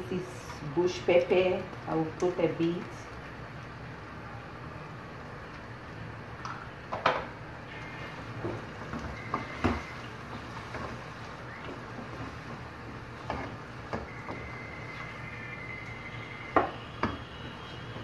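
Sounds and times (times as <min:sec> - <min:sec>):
spatula stirring frying vegetables: 0:07.7 - 0:18.0.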